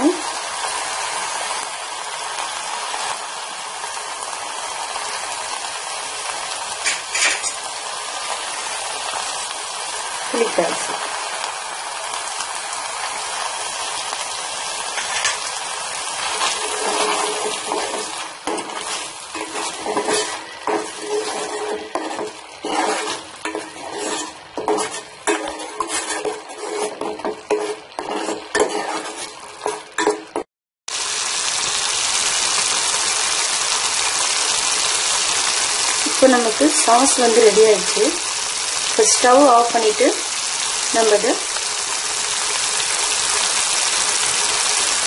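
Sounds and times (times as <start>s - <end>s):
sauce sizzling in a pan: 0.0s - 45.0s
metal ladle scraping a pan: 6.8s - 7.7s, 14.9s - 15.5s, 16.2s - 30.4s.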